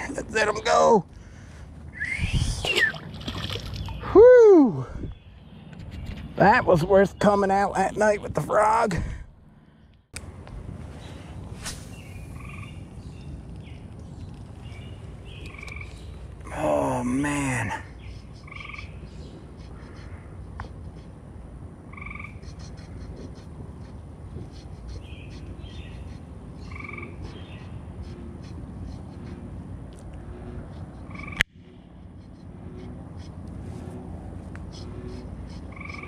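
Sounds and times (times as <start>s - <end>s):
frogs croaking: 12.3s - 12.8s, 15.3s - 19.2s, 21.8s - 22.5s, 26.6s - 27.8s, 30.4s - 33.4s, 34.7s - 36.0s.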